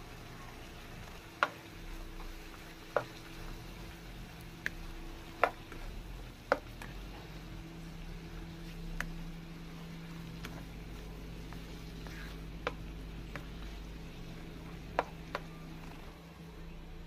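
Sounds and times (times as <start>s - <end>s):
chicken frying in a wok: 0.0s - 17.0s
steady low hum: 0.0s - 17.0s
spatula tapping pan: 1.4s - 3.6s, 4.6s - 7.5s, 8.1s - 16.1s.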